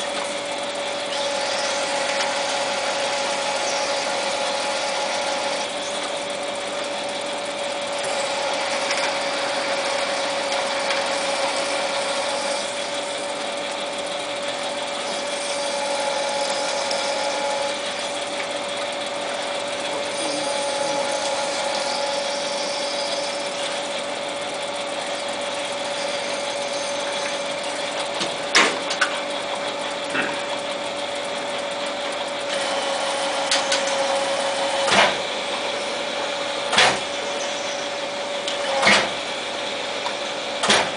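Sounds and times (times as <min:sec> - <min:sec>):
lathe whining: 0:00.0 - 0:40.9.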